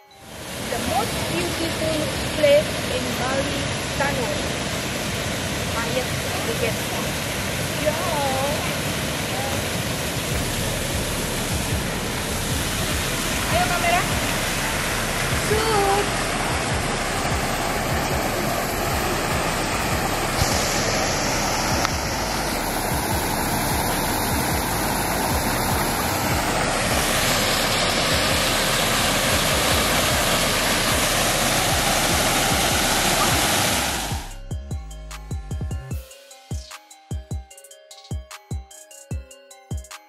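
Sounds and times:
water pouring into a pool: 2.3 - 34.3.

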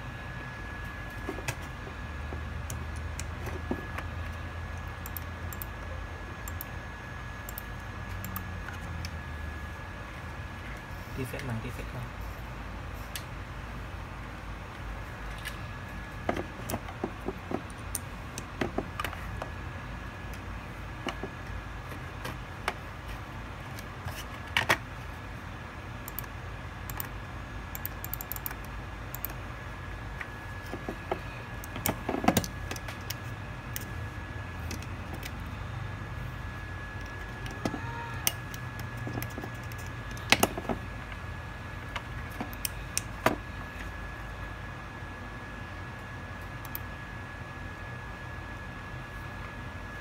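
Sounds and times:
faint high whine: 0.0 - 24.4, 25.0 - 50.0
mouse and keyboard clicks: 27.8 - 29.4, 37.4 - 40.6.

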